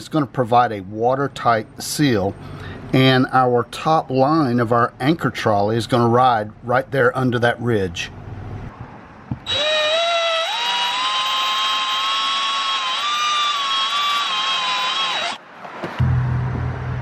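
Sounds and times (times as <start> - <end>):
power drill whining: 9.4 - 15.4.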